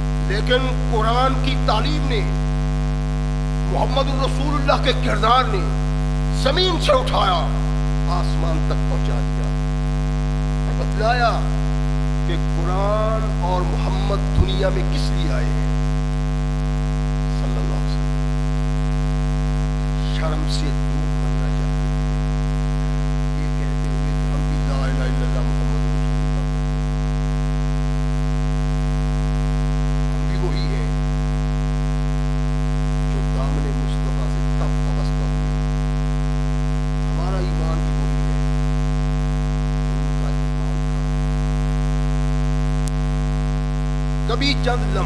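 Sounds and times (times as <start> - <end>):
electrical mains hum: 0.0 - 45.0
man's voice: 0.3 - 2.4, 3.7 - 9.6, 10.7 - 11.6, 12.3 - 15.7, 17.3 - 18.0, 20.0 - 21.8, 22.8 - 26.5, 30.2 - 31.0, 33.1 - 35.6, 37.1 - 38.0, 44.2 - 45.0.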